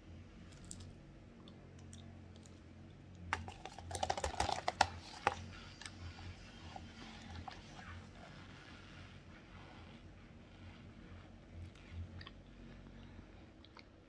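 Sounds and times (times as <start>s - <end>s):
cornstarch being chewed: 3.3s - 8.3s.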